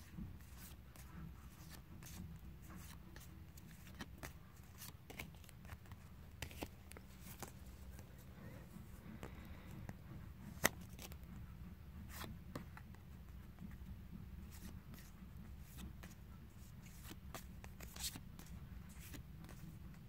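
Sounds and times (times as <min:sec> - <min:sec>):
cards flicking and rustling: 0:00.0 - 0:08.1, 0:10.4 - 0:11.3, 0:12.0 - 0:13.0, 0:14.4 - 0:20.0.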